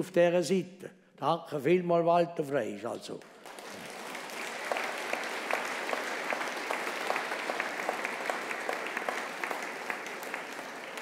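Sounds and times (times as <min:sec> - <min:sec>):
audience applause: 0:03.2 - 0:11.0.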